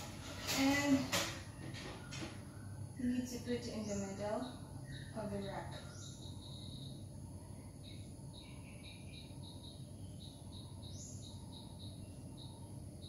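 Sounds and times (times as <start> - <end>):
low steady hum: 0.0 - 13.0
bird chirping: 1.5 - 13.0.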